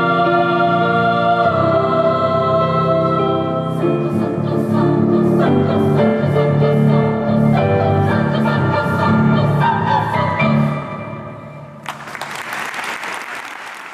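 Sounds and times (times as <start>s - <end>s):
women's choir singing: 0.0s - 10.8s.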